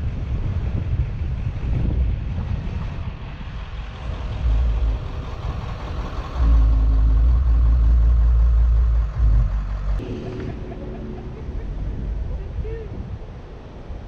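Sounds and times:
car engine rumble: 0.0 - 14.0
road noise: 0.0 - 14.0
steady hum: 3.9 - 13.5.

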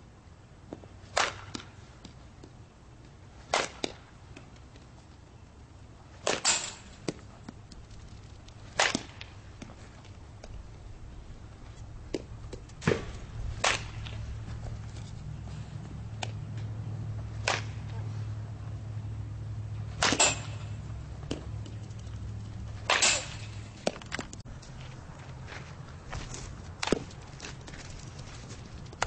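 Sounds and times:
bat hitting balls: 0.7 - 2.5, 3.3 - 4.8, 6.1 - 7.6, 8.5 - 10.6, 12.0 - 15.1, 15.8 - 18.8, 19.5 - 24.4.

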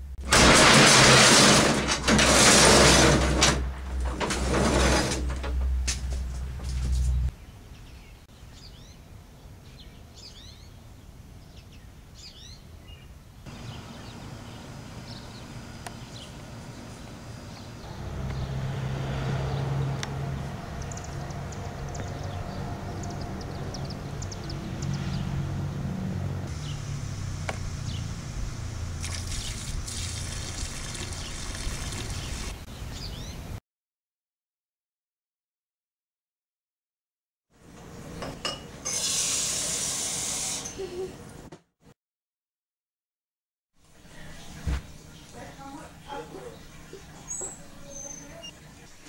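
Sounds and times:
small birds chirping: 7.1 - 18.6, 20.7 - 25.4, 30.9 - 33.6, 44.1 - 49.0
liquid splashing into drain: 29.0 - 32.6.

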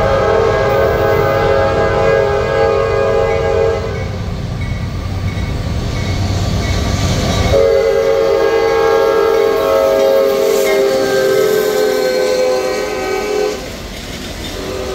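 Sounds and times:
locomotive air horn: 0.0 - 4.2, 7.5 - 13.8, 14.5 - 14.9
train rumble: 0.0 - 14.9.

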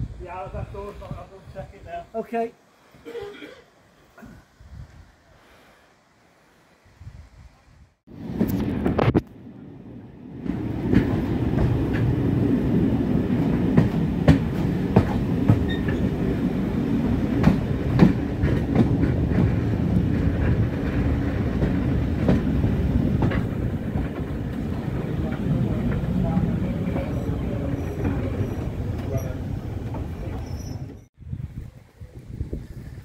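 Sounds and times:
wheels rumbling on rail: 8.1 - 32.7.

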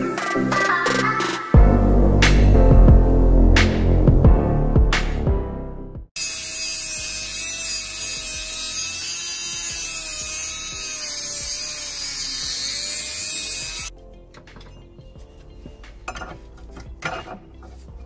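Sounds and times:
rotary tool cutting metal: 6.2 - 13.9.

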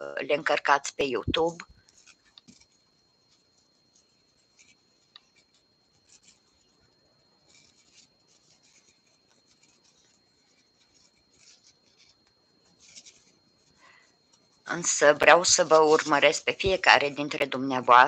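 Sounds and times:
high-pitched electronic whine: 0.0 - 18.0
crochet hook rustling yarn: 0.3 - 18.0.

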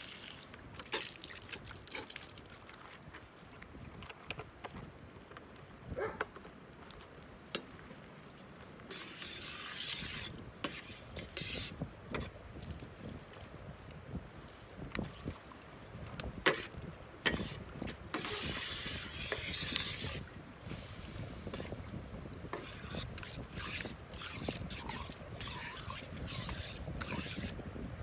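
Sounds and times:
liquid sloshing in pan: 16.5 - 27.5
utensil scraping and clinking pan: 17.3 - 20.2, 22.5 - 27.6.

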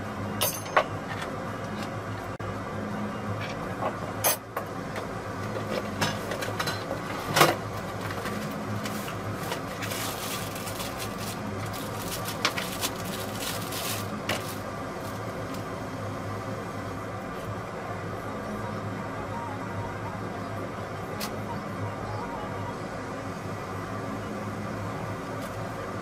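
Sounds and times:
plastic bag crinkling: 8.9 - 15.3.

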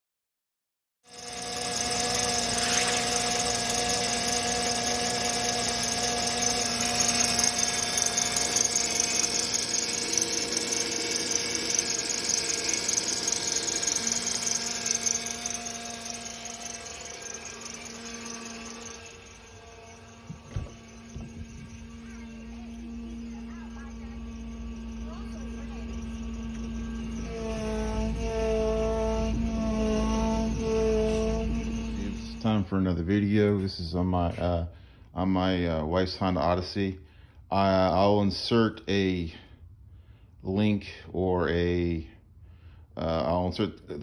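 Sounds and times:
engine idling: 1.1 - 32.7
power steering pump whining: 1.1 - 33.6.

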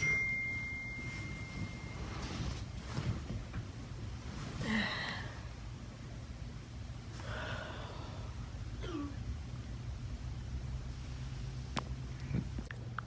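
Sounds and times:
low hum: 0.0 - 13.0
person making breathy sounds: 4.6 - 5.6, 7.2 - 9.2.

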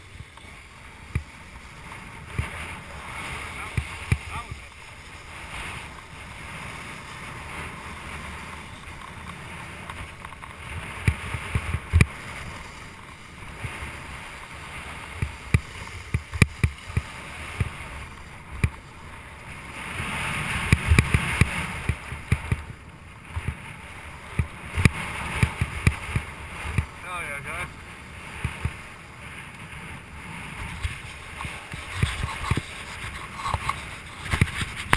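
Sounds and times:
snowboard scraping over snow: 0.0 - 34.9.

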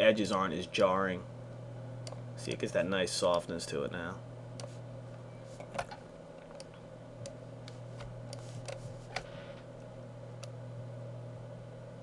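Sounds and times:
steady low hum: 0.0 - 12.0
computer mouse clicks: 2.0 - 2.6, 4.6 - 4.8, 5.6 - 9.3.

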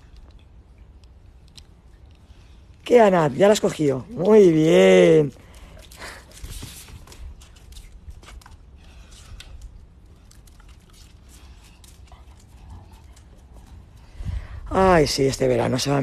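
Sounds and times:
dogs scuffling: 4.1 - 14.2
dog claws clicking on tiles: 5.3 - 14.1.

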